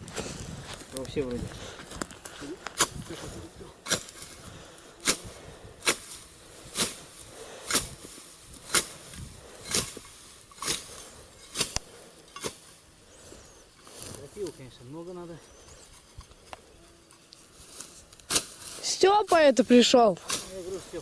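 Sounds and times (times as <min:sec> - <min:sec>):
hoe swishing cuts: 0:05.0 - 0:12.7.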